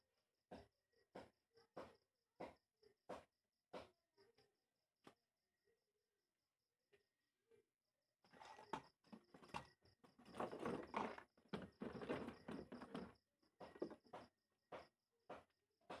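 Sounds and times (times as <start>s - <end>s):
handling knocks and clatter: 8.3s - 14.3s.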